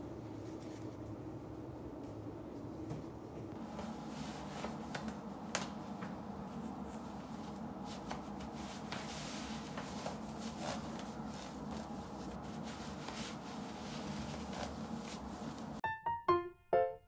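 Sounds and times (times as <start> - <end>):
low steady hum: 0.0 - 15.8
clothing rustling: 3.6 - 15.8.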